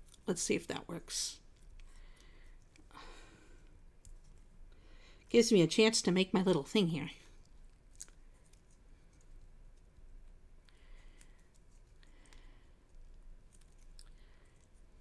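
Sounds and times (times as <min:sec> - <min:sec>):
plastic strip crinkling: 0:07.4 - 0:14.9.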